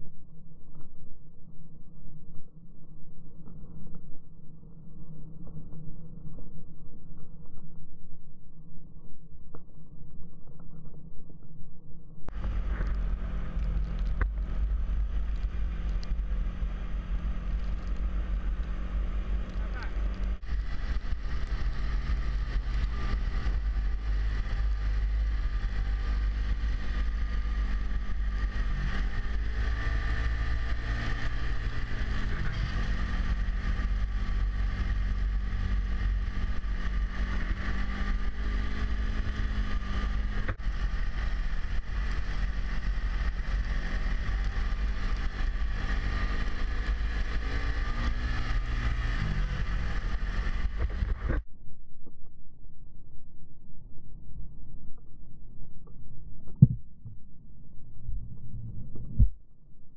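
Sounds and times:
snowmobile engine running: 12.3s - 51.4s.

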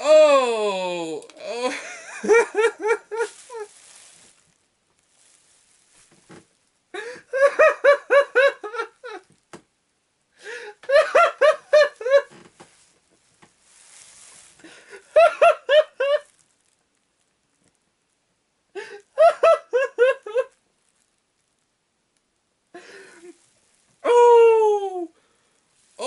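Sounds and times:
man laughing hard: 1.4s - 3.7s, 7.0s - 9.2s, 10.8s - 12.3s, 14.7s - 16.3s, 18.8s - 20.5s
breathy gasps: 6.9s - 7.3s, 10.4s - 10.9s, 18.8s - 19.2s, 22.8s - 23.3s.

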